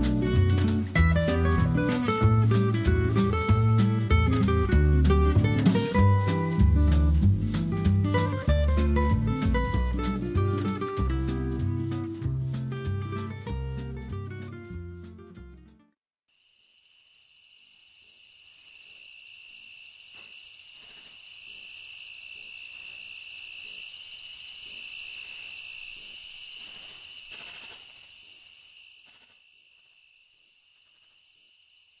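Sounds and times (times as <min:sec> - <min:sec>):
cricket chirps: 0:16.3 - 0:32.0
crickets trilling: 0:16.3 - 0:32.0.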